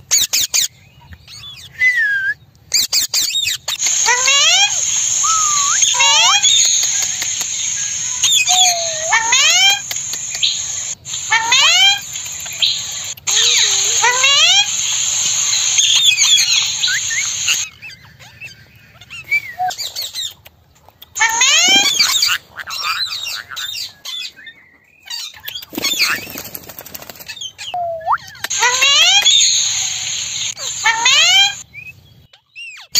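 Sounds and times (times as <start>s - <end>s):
parakeets calling shrilly: 2.8s - 17.7s, 21.2s - 23.9s, 28.3s - 31.7s
steady high hiss: 3.7s - 17.7s, 28.5s - 31.6s.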